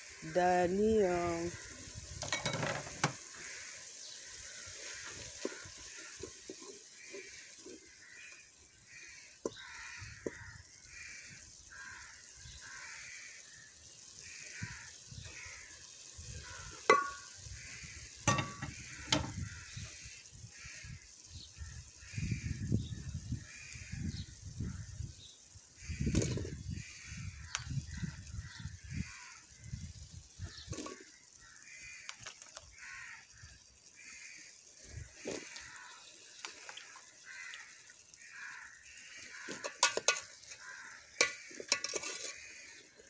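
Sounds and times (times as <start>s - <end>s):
vegetables sizzling in a pot: 0.0s - 43.0s
wooden spoon scraping a pot: 2.1s - 8.4s, 39.2s - 43.0s.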